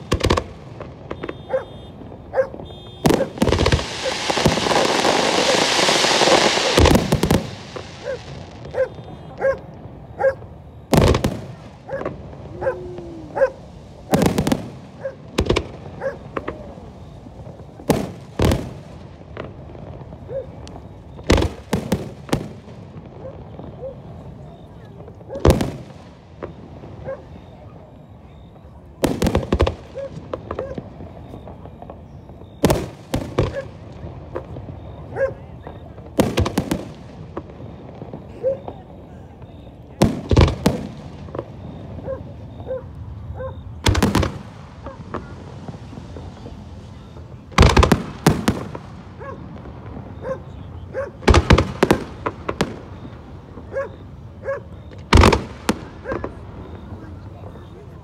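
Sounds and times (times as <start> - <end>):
loud firework boom: 0.0 - 9.4
faint fireworks pops: 0.0 - 58.0
fireworks bangs: 0.0 - 58.0.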